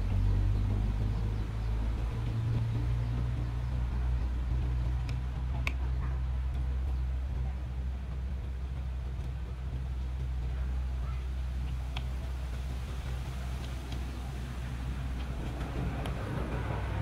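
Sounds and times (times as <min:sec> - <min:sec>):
low engine hum: 0:00.0 - 0:17.0
faint clicks: 0:11.6 - 0:12.2.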